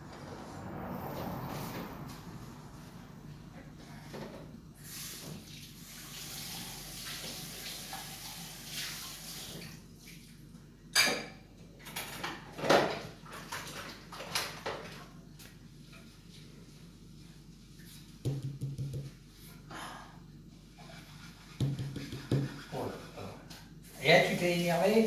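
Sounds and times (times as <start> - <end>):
tap water running into sink: 5.2 - 9.8
dishes and cutlery clattering: 11.0 - 12.9.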